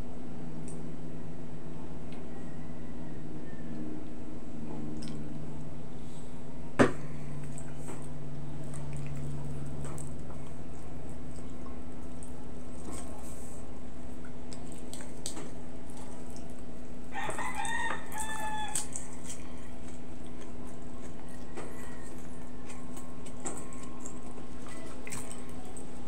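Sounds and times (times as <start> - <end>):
steady low hum: 0.0 - 26.0
rooster crowing: 2.2 - 4.0, 17.1 - 19.7
eating clicks and smacks: 4.9 - 5.4, 7.4 - 13.1, 14.2 - 16.7, 17.3 - 26.0.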